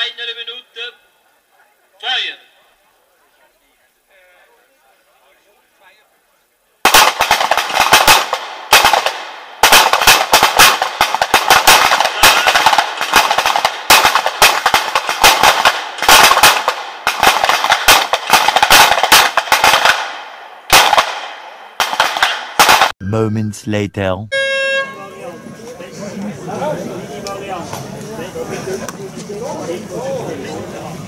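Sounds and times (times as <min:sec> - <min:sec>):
pistol shots echoing: 0:06.9 - 0:22.9.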